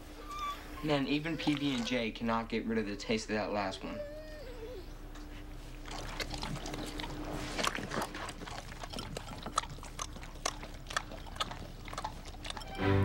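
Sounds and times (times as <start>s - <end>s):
dog chewing wetly: 0.8s - 2.4s, 5.0s - 12.8s.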